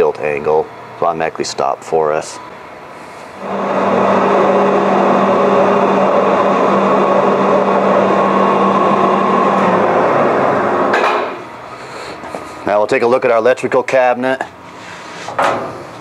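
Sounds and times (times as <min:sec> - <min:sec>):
electric motor hum: 0:03.1 - 0:12.5
gear whine: 0:03.2 - 0:11.8.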